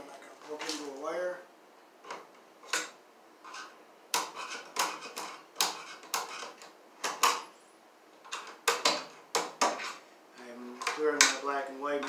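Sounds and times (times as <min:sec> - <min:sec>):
sharp clicks and scrapes: 0:02.1 - 0:07.4.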